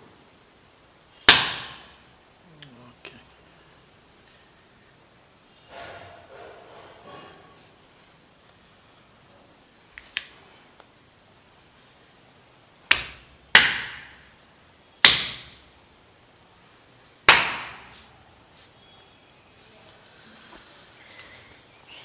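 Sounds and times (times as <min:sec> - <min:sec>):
loud sharp hand bangs: 0:01.3 - 0:02.0, 0:17.3 - 0:17.9.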